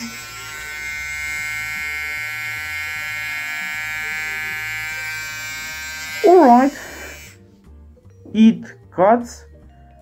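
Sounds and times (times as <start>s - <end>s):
hair trimmer buzzing: 0.0s - 7.4s.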